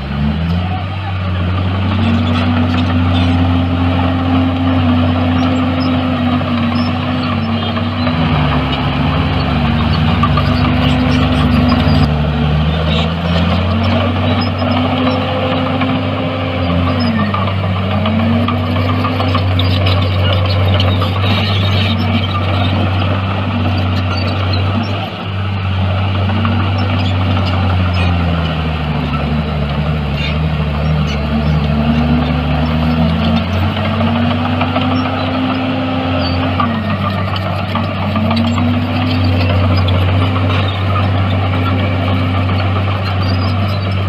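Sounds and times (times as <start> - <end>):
bulldozer diesel engine running: 0.0 - 44.0.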